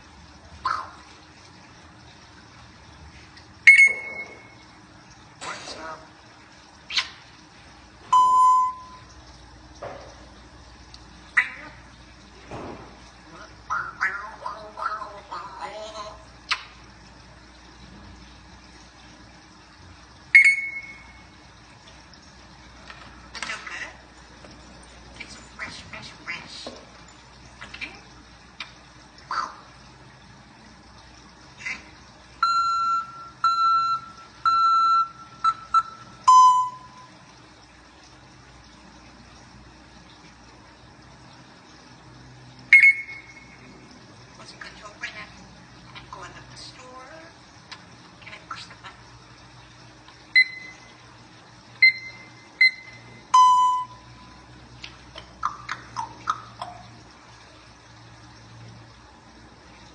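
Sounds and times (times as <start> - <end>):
parrot whistles dropping in pitch: 3.7 - 4.5, 20.4 - 21.1, 42.7 - 43.5
parrot imitating beeps: 3.7 - 4.6, 8.1 - 9.1, 20.4 - 21.2, 32.4 - 37.1, 42.7 - 43.6, 50.3 - 50.9, 51.8 - 54.1.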